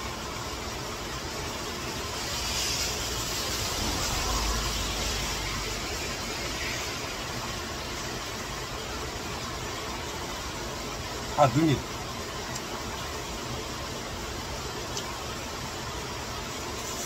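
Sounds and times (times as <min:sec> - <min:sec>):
fast-flowing stream in flood: 0:00.0 - 0:17.0
heavy rain: 0:00.0 - 0:17.0.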